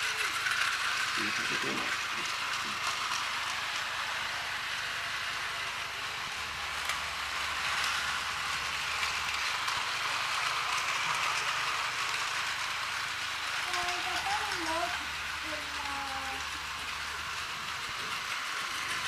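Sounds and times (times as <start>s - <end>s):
toy train motor whirring: 0.0s - 19.0s.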